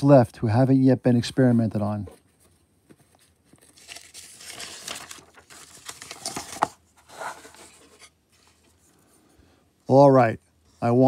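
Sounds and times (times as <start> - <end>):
paper page rustling: 2.1 - 8.9.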